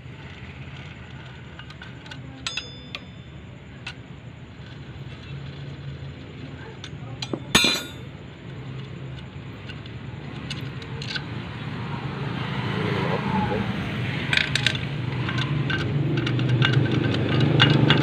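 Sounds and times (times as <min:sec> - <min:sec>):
steel tools clinking on metal: 0:01.6 - 0:04.0, 0:06.8 - 0:08.1
ringing metal clank: 0:02.4 - 0:03.9, 0:07.2 - 0:08.1
rushing background noise: 0:07.2 - 0:18.0.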